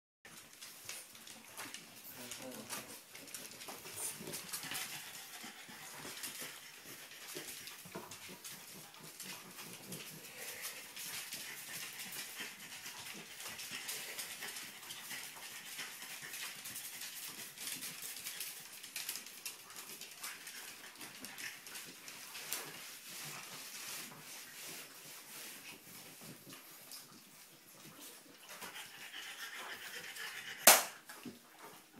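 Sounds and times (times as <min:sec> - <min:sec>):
puppy vocal sounds: 0:00.9 - 0:18.4, 0:26.2 - 0:31.1.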